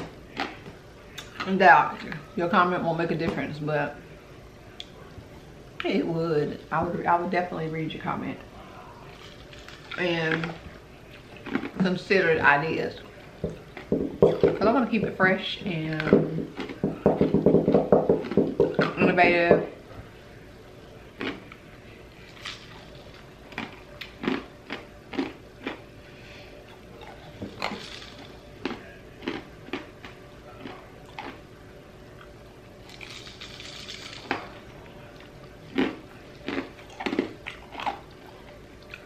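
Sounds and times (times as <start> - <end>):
person chewing crushed ice: 9.1 - 11.8, 21.2 - 21.6, 22.3 - 25.8, 26.6 - 31.4, 32.2 - 39.0.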